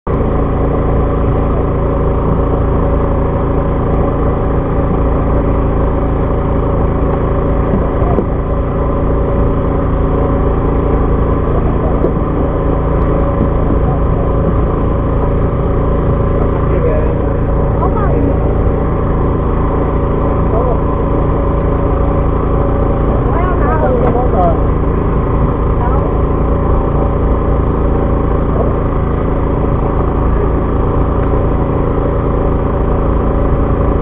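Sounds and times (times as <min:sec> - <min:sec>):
boat engine droning: 0:00.0 - 0:34.0.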